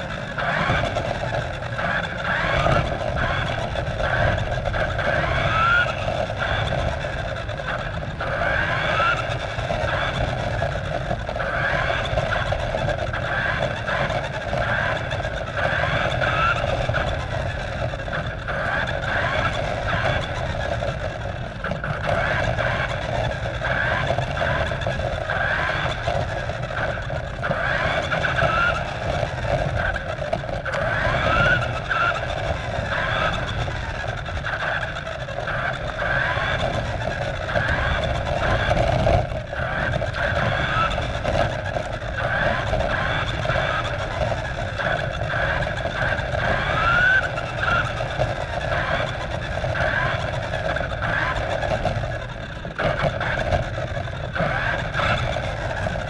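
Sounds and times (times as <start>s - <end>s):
toy car motor whining: 0.0s - 56.0s
tyres rumbling on asphalt: 0.0s - 56.0s.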